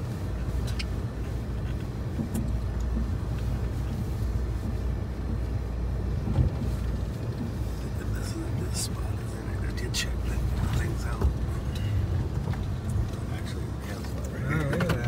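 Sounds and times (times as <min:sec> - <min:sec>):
engine and tyres rumbling: 0:00.0 - 0:15.0
small rattles and knocks: 0:00.5 - 0:05.5, 0:06.1 - 0:07.9, 0:10.4 - 0:15.0.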